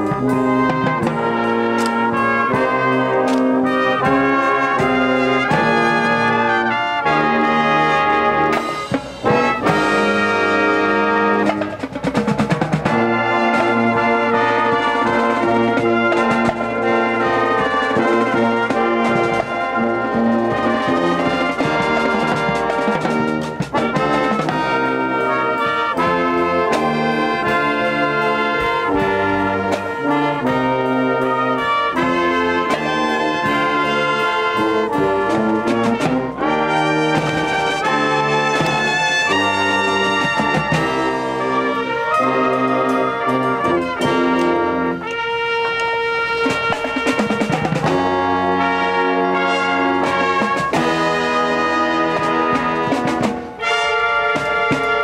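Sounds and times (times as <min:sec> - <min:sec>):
brass band music: 0:00.0 - 0:55.0.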